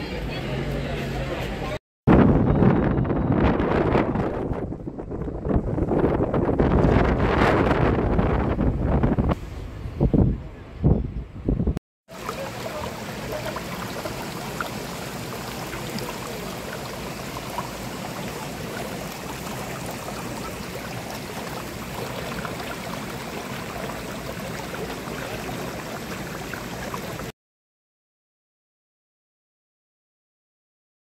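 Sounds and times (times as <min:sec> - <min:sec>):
stream rushing over rocks: 0:12.1 - 0:27.3.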